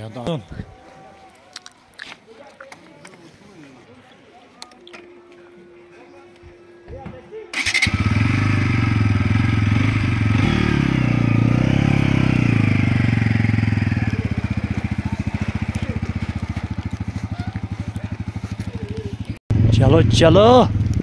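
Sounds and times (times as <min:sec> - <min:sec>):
motorcycle engine revving: 0:07.6 - 0:21.0.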